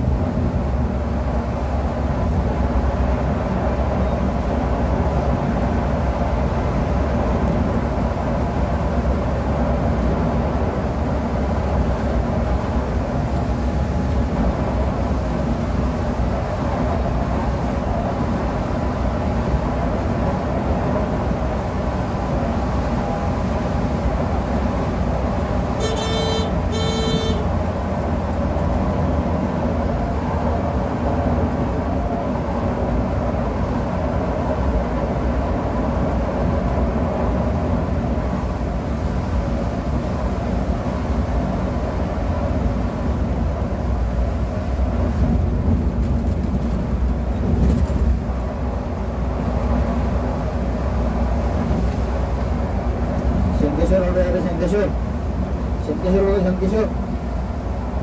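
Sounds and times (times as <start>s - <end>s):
coach engine and road noise: 0.0s - 58.0s
horn short blasts: 25.8s - 27.5s.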